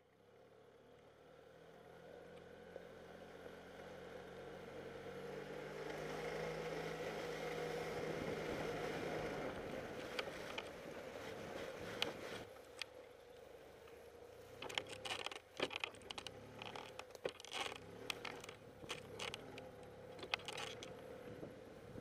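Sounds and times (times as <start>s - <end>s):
golf cart engine running: 11.8s - 22.0s
sharp clicks: 14.6s - 21.0s.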